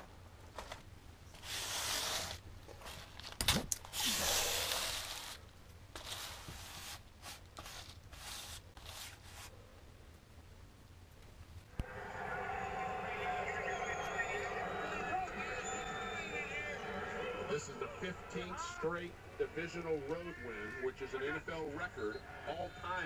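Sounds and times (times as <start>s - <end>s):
bubble wrap rustling and crinkling: 1.4s - 9.5s.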